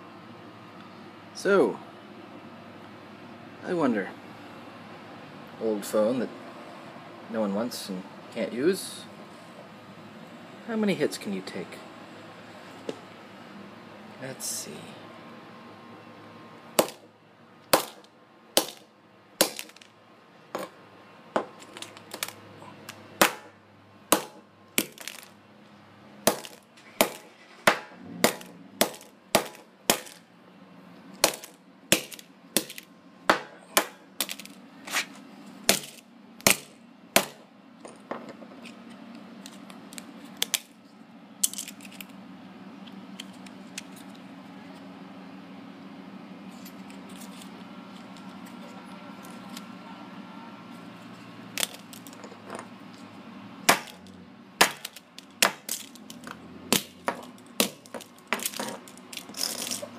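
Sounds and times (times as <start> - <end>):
hammer striking phone on concrete: 16.8 - 17.0, 17.8 - 18.8, 19.4 - 19.9, 23.2 - 25.2, 26.3 - 30.2, 31.2 - 34.5, 35.7 - 37.4, 53.7 - 54.0, 54.6 - 55.7
broken phone clicks and rattles: 57.2 - 59.8.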